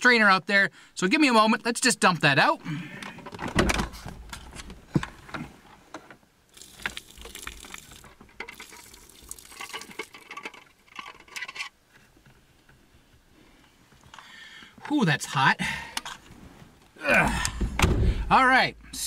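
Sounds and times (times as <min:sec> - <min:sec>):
water pouring from a plastic jug: 0:06.5 - 0:10.7.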